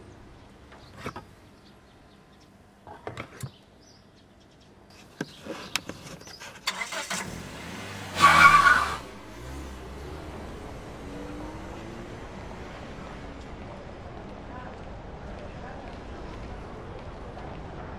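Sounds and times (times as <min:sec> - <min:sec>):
van engine starting and pulling away: 0:06.6 - 0:13.7.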